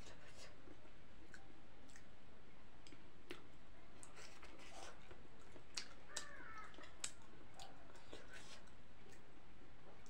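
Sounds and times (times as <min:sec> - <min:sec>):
steady low hiss: 0:00.0 - 0:10.0
person chewing: 0:02.9 - 0:09.3.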